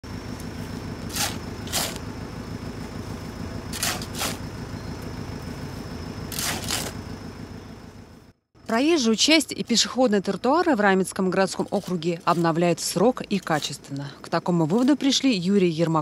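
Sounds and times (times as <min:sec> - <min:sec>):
diesel engine idling: 0:00.0 - 0:11.8
shovels scraping asphalt: 0:01.0 - 0:02.0, 0:03.7 - 0:04.5, 0:06.3 - 0:07.0, 0:11.5 - 0:13.8.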